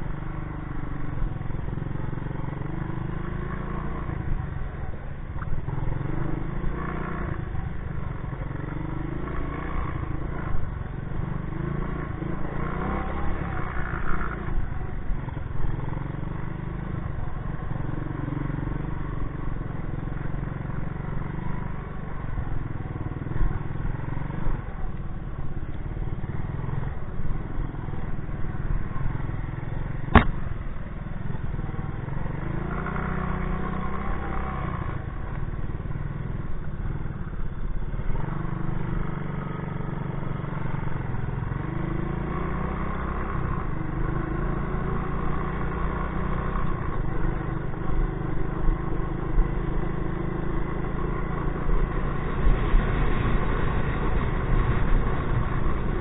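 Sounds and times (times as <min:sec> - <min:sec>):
sharp knock: 0:30.1 - 0:30.4.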